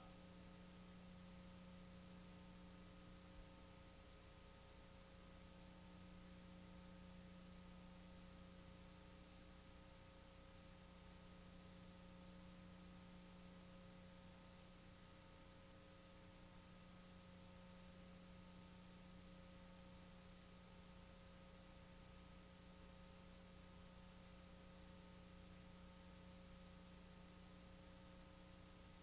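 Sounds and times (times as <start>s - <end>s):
faint electrical hum and hiss: 0.0s - 29.0s.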